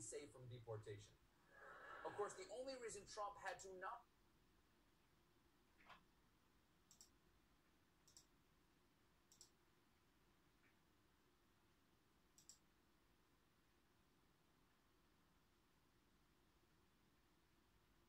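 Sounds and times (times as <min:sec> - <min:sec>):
computer mouse clicks: 0:05.8 - 0:06.1, 0:06.8 - 0:07.2, 0:08.0 - 0:08.4, 0:09.2 - 0:09.6, 0:12.3 - 0:12.8.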